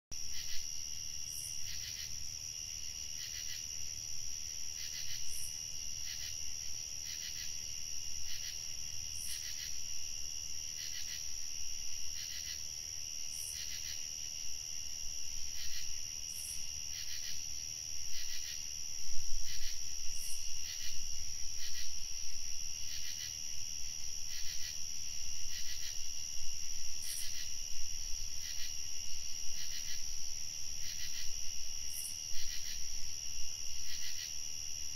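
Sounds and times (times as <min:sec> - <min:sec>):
crickets trilling: 0:00.2 - 0:34.9.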